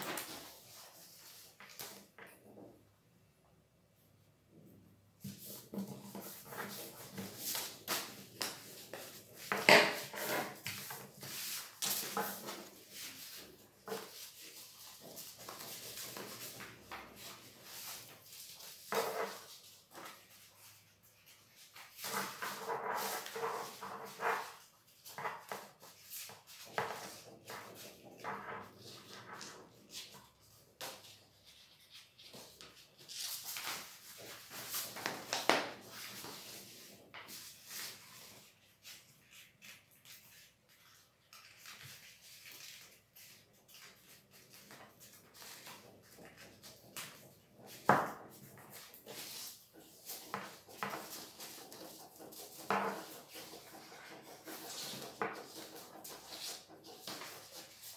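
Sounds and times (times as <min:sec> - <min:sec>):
paper rustling and crinkling: 0:05.4 - 0:57.9.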